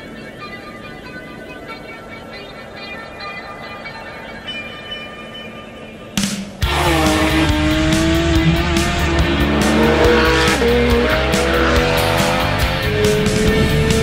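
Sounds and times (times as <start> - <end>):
music with steady beat: 6.2 - 14.0
car engine revving: 6.6 - 14.0.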